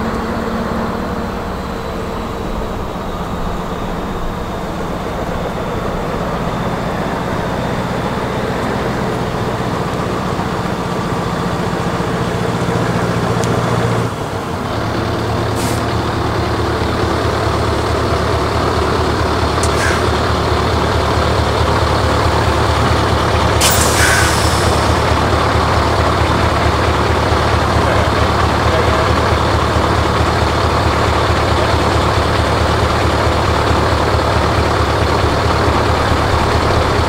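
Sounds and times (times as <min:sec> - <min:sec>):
diesel truck engine running: 0:00.0 - 0:37.0
air hissing: 0:19.6 - 0:20.2, 0:23.5 - 0:25.4.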